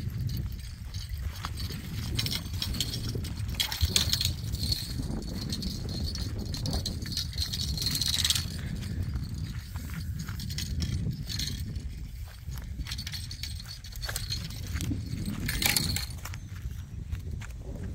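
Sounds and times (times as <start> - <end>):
wind rumbling on microphone: 0.0 - 17.9
fishing reel clicks and rattles: 0.2 - 11.8, 12.8 - 16.4.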